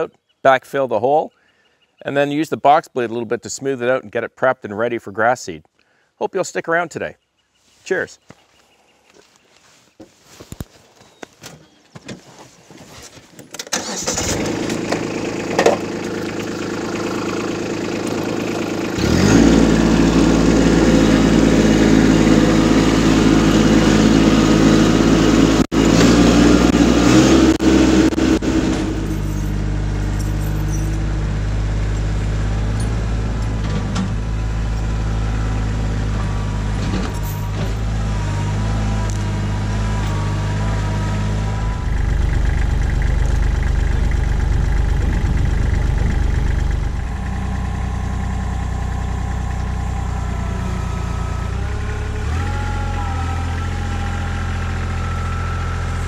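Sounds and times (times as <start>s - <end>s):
tractor diesel engine running: 13.7s - 56.0s.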